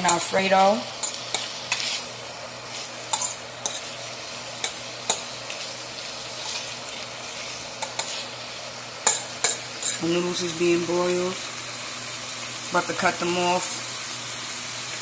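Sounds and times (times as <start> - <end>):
chicken sizzling in a pan: 0.0 - 15.0.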